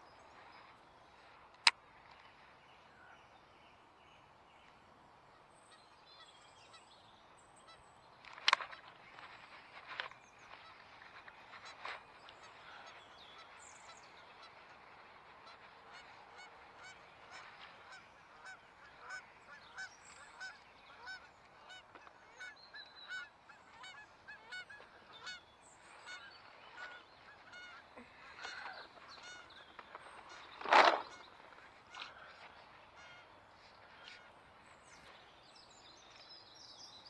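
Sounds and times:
geese honking: 13.9s - 34.4s.

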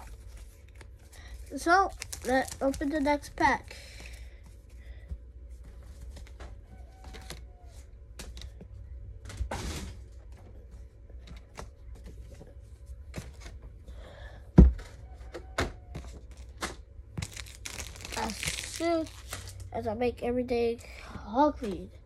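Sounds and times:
packaging rustle: 0.1s - 3.3s, 17.2s - 19.7s.

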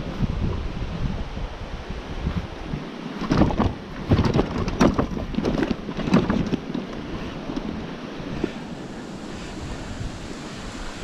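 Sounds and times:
wind noise on microphone: 0.0s - 11.0s
bicycle knocking and rattling: 3.2s - 8.6s.

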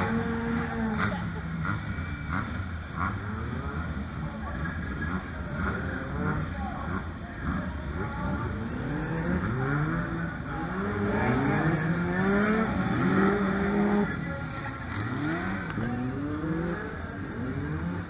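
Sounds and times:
race car engines revving: 0.0s - 18.0s.

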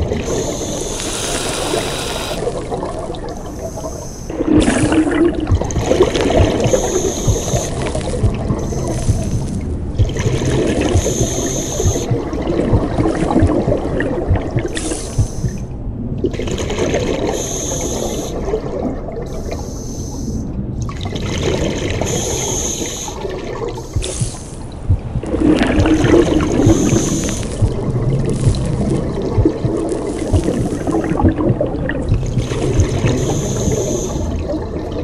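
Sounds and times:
bubbles gurgling underwater: 0.0s - 19.4s, 20.8s - 35.0s
diver breathing through regulator: 0.2s - 2.5s, 10.8s - 12.1s, 14.7s - 15.6s, 17.3s - 18.4s, 22.0s - 24.7s, 25.8s - 27.7s, 33.0s - 34.3s.

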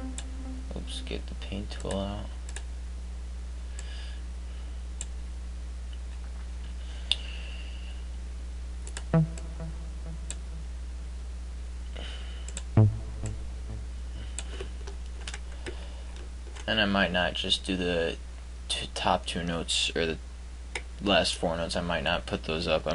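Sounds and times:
synth note previews: 0.0s - 1.4s, 9.1s - 11.2s, 12.8s - 14.4s
low electrical hum: 0.0s - 22.9s.

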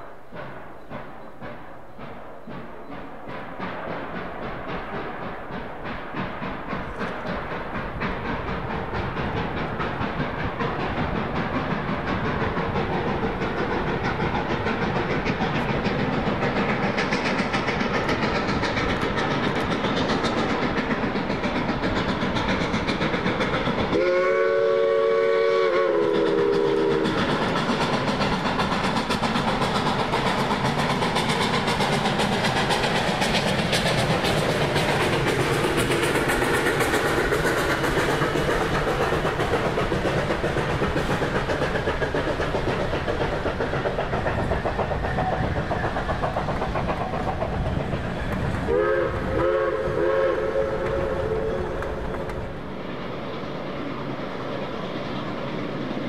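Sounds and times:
steam locomotive exhaust: 0.0s - 56.0s
train wheels clicking over rail joints: 0.0s - 56.0s
steam whistle blast: 24.0s - 27.2s, 48.7s - 51.7s.

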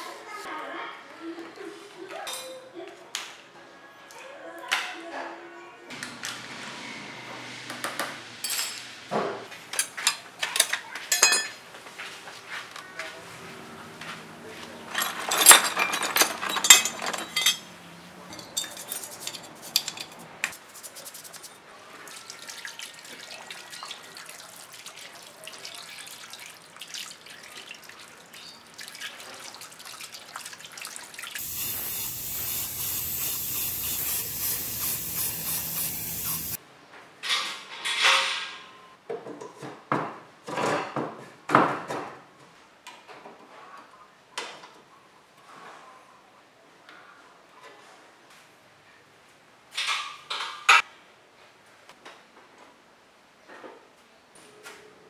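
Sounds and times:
metal parts clattering from a tub: 9.8s - 11.6s, 14.9s - 20.2s
metal parts scraping and clicking: 14.9s - 17.7s, 18.3s - 20.5s, 31.4s - 36.6s
water spray splashing: 19.5s - 21.6s, 30.4s - 36.6s.

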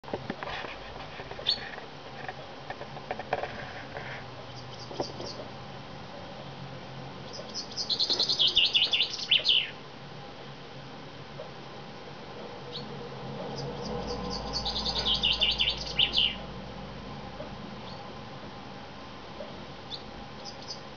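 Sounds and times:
bird chirps: 7.3s - 9.8s, 12.7s - 12.9s, 13.5s - 16.4s, 17.8s - 18.0s, 19.9s - 20.9s.

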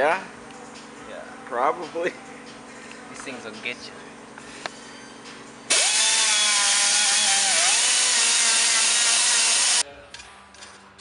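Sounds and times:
die grinder wire brush whine: 5.7s - 9.8s.

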